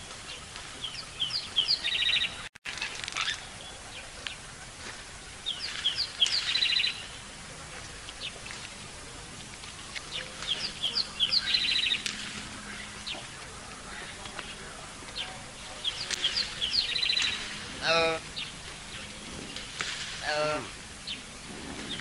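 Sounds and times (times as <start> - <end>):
bird chirping and trilling: 0.3 - 4.4, 5.4 - 7.3, 9.7 - 13.4, 14.0 - 22.0.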